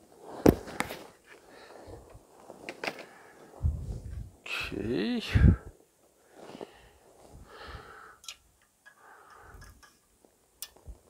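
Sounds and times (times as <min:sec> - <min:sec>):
faint breathing: 0:00.2 - 0:02.3, 0:02.9 - 0:04.2, 0:05.3 - 0:10.1.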